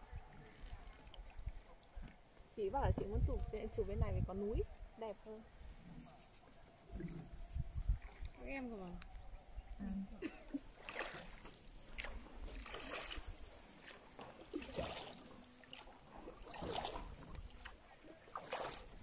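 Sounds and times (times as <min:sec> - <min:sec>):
oars splashing in water: 0:10.4 - 0:19.0.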